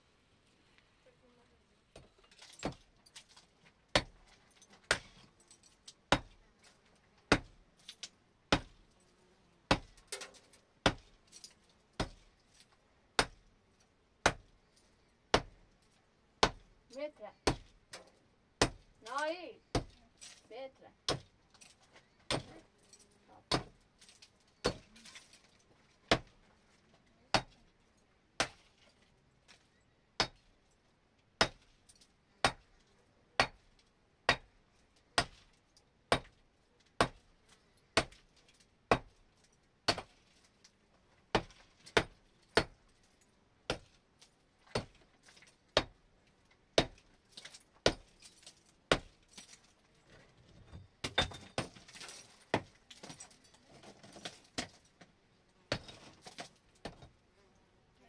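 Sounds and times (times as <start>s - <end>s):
sharp hard knocks on masonry: 2.0s - 2.8s, 3.9s - 4.2s, 6.1s - 6.4s, 7.3s - 7.6s, 8.5s - 8.8s, 9.7s - 11.2s, 12.0s - 12.3s, 13.1s - 13.5s, 14.2s - 14.5s, 15.3s - 15.6s, 16.4s - 16.7s, 17.4s - 19.0s, 19.7s - 20.0s, 21.0s - 21.3s, 22.3s - 22.6s, 23.5s - 24.9s, 26.1s - 26.4s, 27.3s - 27.6s, 28.4s - 28.8s, 30.2s - 30.5s, 31.4s - 31.7s, 32.4s - 32.7s, 33.4s - 33.7s, 34.3s - 34.6s, 35.2s - 35.5s, 36.1s - 36.4s, 37.0s - 37.3s, 38.0s - 38.3s, 38.9s - 39.2s, 39.9s - 40.2s, 41.3s - 42.9s, 43.7s - 44.0s, 44.7s - 45.0s, 45.8s - 46.0s, 46.8s - 48.1s, 48.9s - 49.2s, 50.7s - 53.3s, 55.7s - 57.1s.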